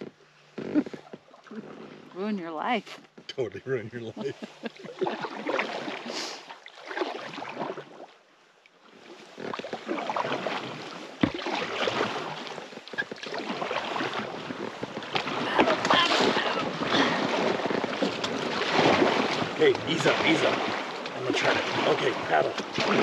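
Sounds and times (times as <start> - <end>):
river water rushing and splashing: 4.2 - 8.1, 8.8 - 23.0.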